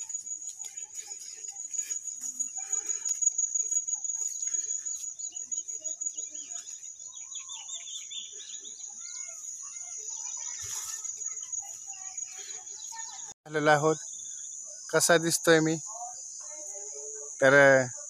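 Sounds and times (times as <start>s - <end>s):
high-pitched insect drone: 0.0s - 6.8s
bird chirps and calls: 3.6s - 13.3s.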